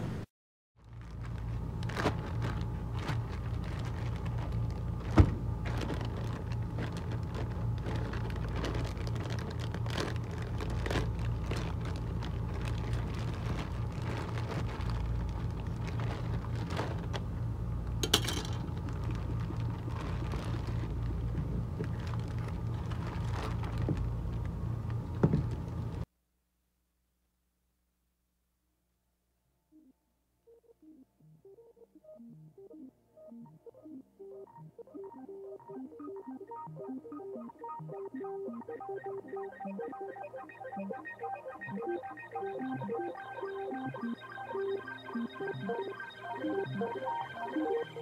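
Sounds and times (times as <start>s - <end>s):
steady low hum: 0.0s - 26.1s
plastic bag crinkling: 0.8s - 17.4s, 18.0s - 25.1s.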